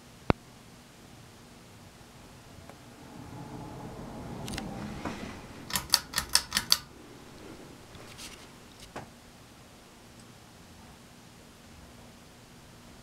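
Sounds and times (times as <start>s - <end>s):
ceiling fan humming: 0.0s - 13.0s
sharp clicks: 5.7s - 6.9s.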